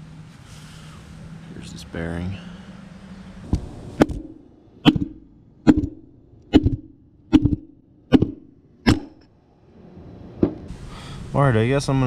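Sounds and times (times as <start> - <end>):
hammer striking metal punch: 4.0 - 9.2.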